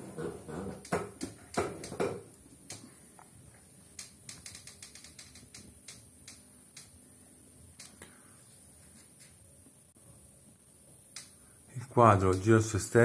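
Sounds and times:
faint high hiss: 0:00.9 - 0:13.0
light clicks and ticks: 0:02.6 - 0:03.3, 0:03.9 - 0:07.0, 0:07.8 - 0:08.2, 0:11.1 - 0:11.4.

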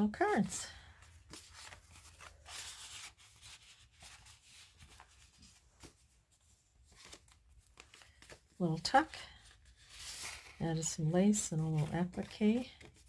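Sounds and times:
paper cards rustling and sliding: 0:00.7 - 0:13.0.

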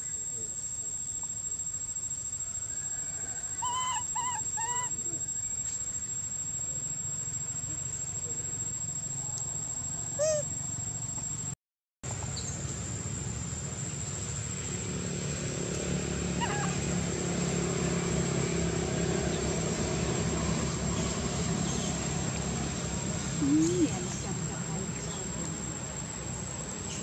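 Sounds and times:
faint monkey chirps: 0:03.1 - 0:11.2, 0:16.4 - 0:16.8, 0:23.4 - 0:24.3
monkey squeaky call: 0:03.6 - 0:05.2, 0:10.2 - 0:10.6, 0:16.4 - 0:16.8.

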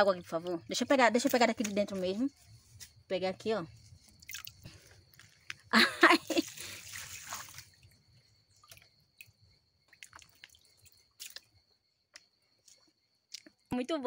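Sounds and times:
water splashing and dripping: 0:04.0 - 0:11.6
water trickling: 0:04.0 - 0:11.6.

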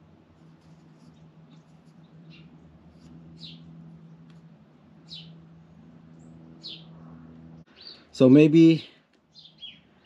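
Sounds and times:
low steady hum: 0:00.0 - 0:08.2.

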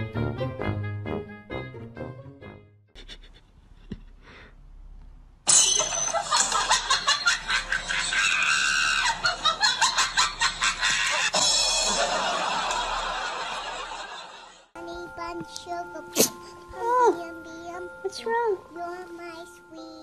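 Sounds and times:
person laughing and shrieking: 0:07.9 - 0:09.5.

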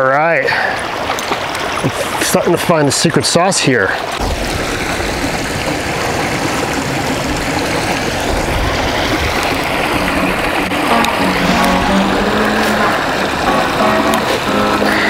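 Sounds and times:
stream rushing: 0:04.0 - 0:15.0.

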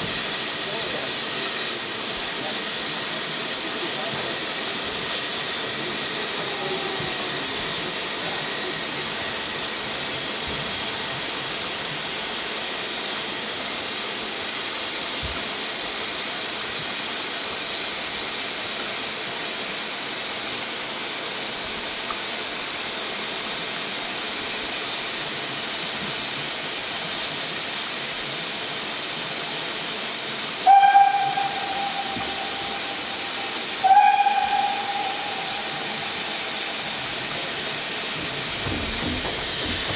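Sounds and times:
steam train rushing hiss: 0:00.0 - 0:39.9
steam locomotive whistle blasts: 0:30.5 - 0:37.9.

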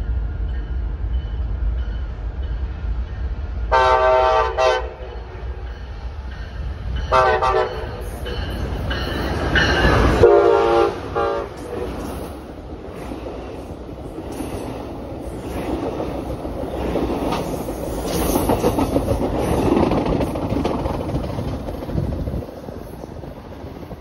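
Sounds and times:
train cars rumbling past: 0:00.0 - 0:24.0
train horn blasts: 0:03.7 - 0:05.3, 0:07.1 - 0:08.0, 0:09.9 - 0:11.9.

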